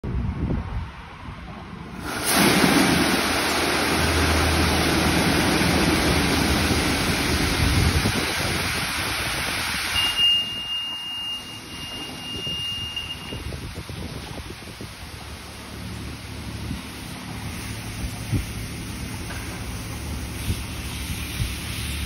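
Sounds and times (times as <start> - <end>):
car wash rushing hiss: 1.9 - 22.0
thin high whine: 9.9 - 13.6.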